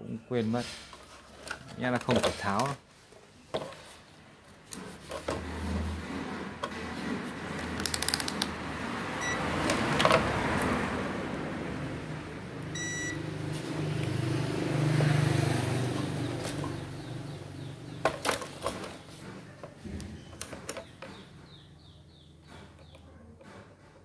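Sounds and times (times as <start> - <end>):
short electronic beeps: 9.2 - 9.4, 12.8 - 13.2.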